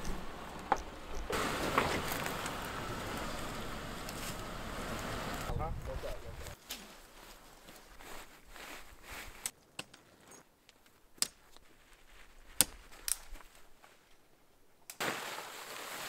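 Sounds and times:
tent rustling: 0.0s - 5.5s, 6.4s - 14.3s, 15.0s - 16.0s
tent poles clicking together: 9.3s - 11.7s, 12.4s - 14.2s.

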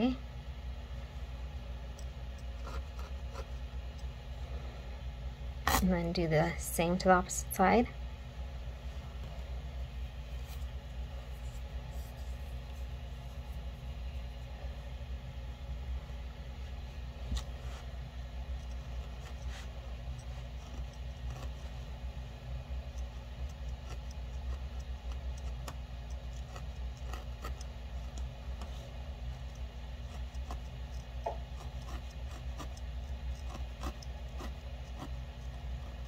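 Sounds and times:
low steady hum: 0.0s - 36.0s
felting needle ticking into wool: 22.8s - 36.0s.

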